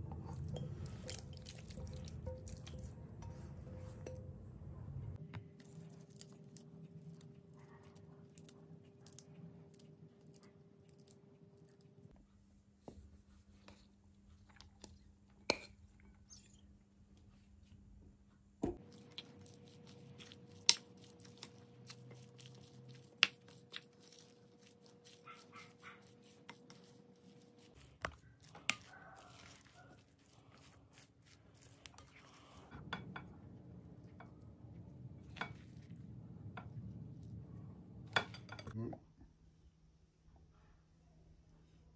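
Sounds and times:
spoon clinking against glass bowl: 0:00.3 - 0:04.5.

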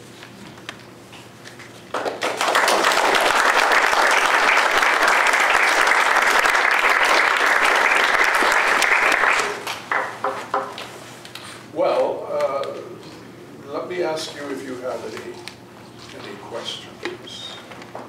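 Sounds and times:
audience applauding: 0:01.9 - 0:10.2.

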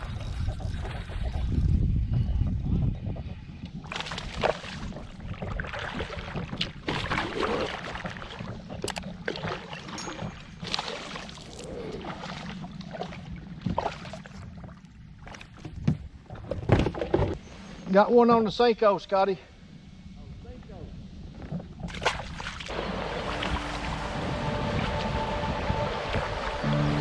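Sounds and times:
paddle splashing in water: 0:03.9 - 0:15.8, 0:21.9 - 0:27.0.

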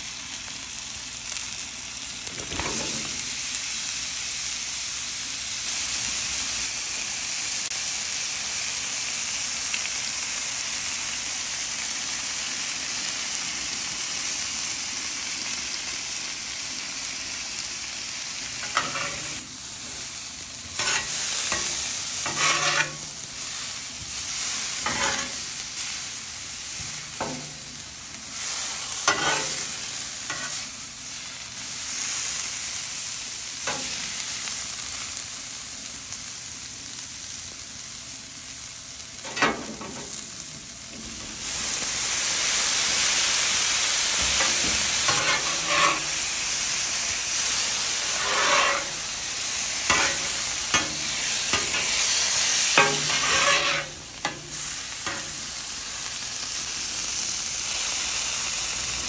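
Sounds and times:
onions and meat sizzling on griddle: 0:00.0 - 0:59.0
spatula scraping griddle: 0:02.3 - 0:03.4, 0:18.4 - 0:30.8, 0:33.6 - 0:34.2, 0:39.2 - 0:41.8, 0:42.4 - 0:55.7.

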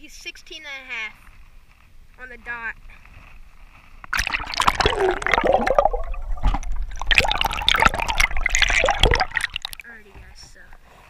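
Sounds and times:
water splashing and gurgling: 0:04.1 - 0:09.9.

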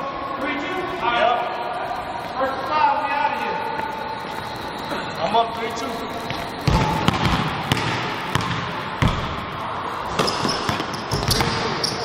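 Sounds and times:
basketball bouncing on wooden floor: 0:06.3 - 0:09.3.

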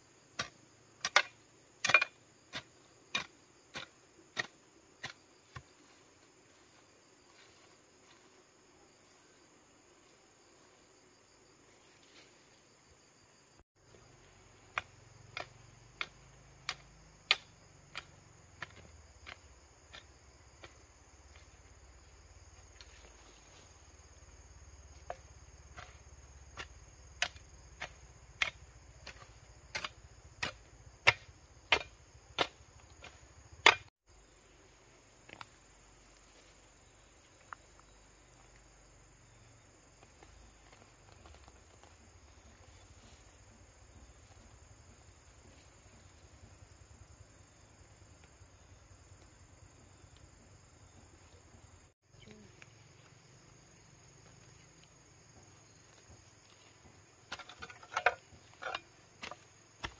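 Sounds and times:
insects droning: 0:00.0 - 0:59.9
hoe chopping into stony soil: 0:00.4 - 0:05.7, 0:14.7 - 0:21.4, 0:24.9 - 0:33.9, 0:56.0 - 0:59.9.

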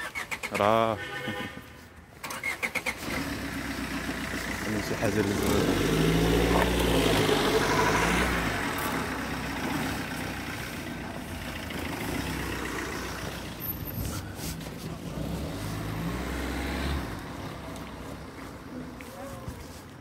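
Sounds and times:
outdoor background noise: 0:00.0 - 0:20.0
engine idling: 0:02.4 - 0:05.8, 0:08.6 - 0:13.7.

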